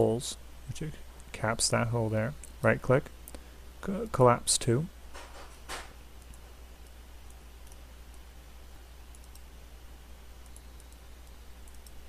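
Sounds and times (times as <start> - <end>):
low electrical hum and hiss: 0.0 - 12.0
faint computer mouse clicks: 6.2 - 8.2, 9.1 - 9.5, 10.4 - 12.0.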